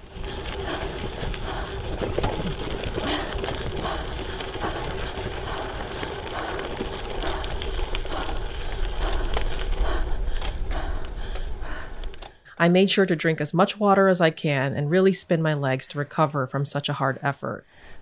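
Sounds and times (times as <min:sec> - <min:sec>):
tyre rumble on gravel: 0:00.0 - 0:07.2
wind buffeting microphone: 0:00.0 - 0:12.1.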